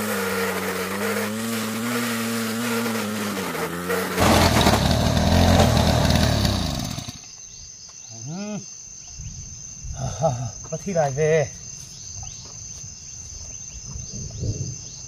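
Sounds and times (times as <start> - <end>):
brush cutter engine revving: 0.0 - 7.3
crickets chirping: 0.0 - 15.0.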